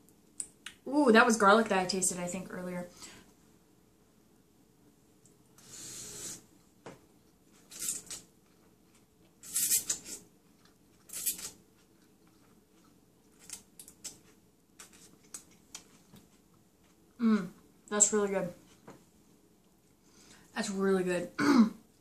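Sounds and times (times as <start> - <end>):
person slurping noodles: 5.6 - 6.5.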